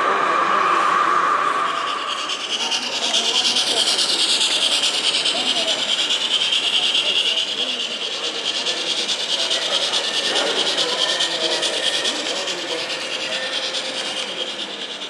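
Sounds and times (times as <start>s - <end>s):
faint background chatter: 0.0s - 15.0s
model train wheels ticking: 1.2s - 15.0s.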